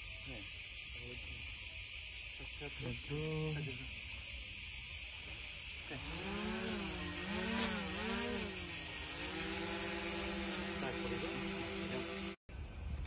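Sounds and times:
insect chorus chirring: 0.0s - 13.0s
drone motors buzzing: 4.9s - 12.4s.

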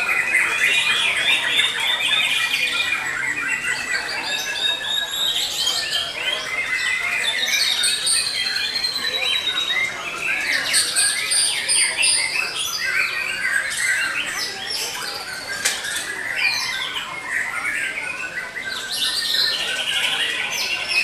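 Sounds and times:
songbirds singing: 0.0s - 21.0s.

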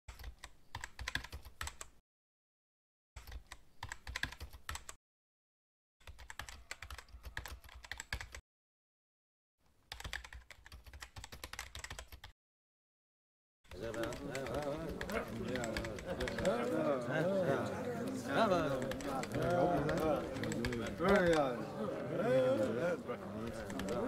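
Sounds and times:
rapid keyboard typing: 0.1s - 1.9s, 3.2s - 5.0s, 6.0s - 8.4s, 9.9s - 12.3s, 13.7s - 16.7s, 18.6s - 21.5s, 23.4s - 24.0s.

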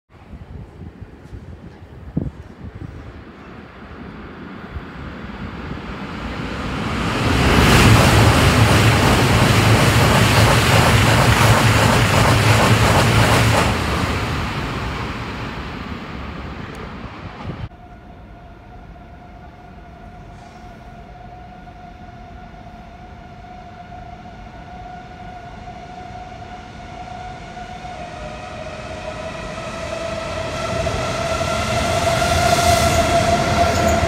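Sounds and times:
train wheels rushing on rails: 0.7s - 17.7s, 25.5s - 34.0s.

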